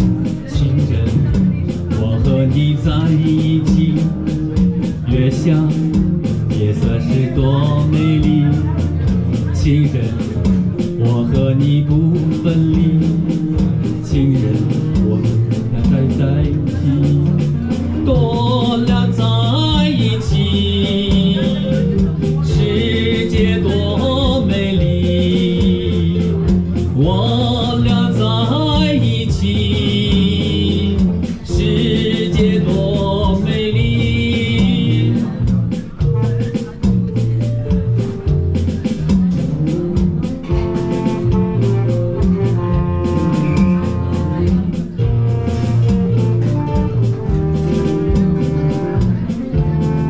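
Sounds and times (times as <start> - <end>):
electric bass guitar: 0.0 - 50.0
electronic keyboards: 0.0 - 50.0
steady beat: 0.0 - 50.0.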